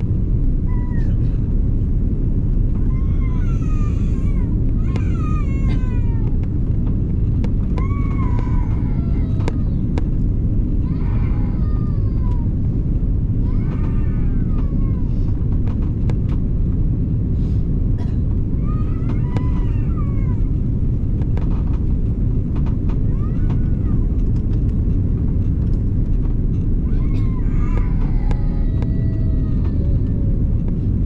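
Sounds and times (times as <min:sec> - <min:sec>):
airliner cabin roar: 0:00.0 - 0:31.0
baby crying: 0:02.8 - 0:06.5, 0:26.8 - 0:30.3.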